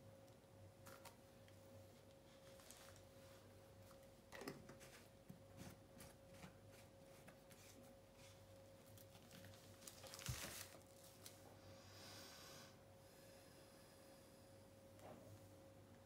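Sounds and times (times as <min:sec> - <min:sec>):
faint steady hum: 0:00.0 - 0:16.0
faint handling rustles and clicks: 0:00.8 - 0:11.5.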